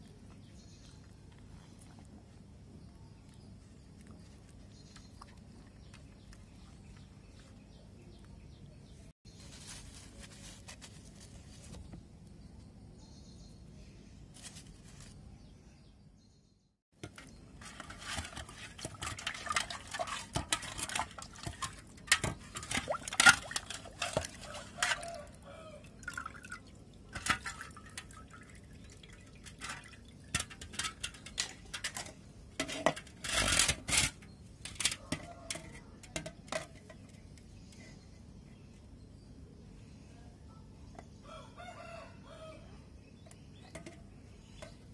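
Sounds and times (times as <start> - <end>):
water splashing and sloshing: 17.0 - 34.0.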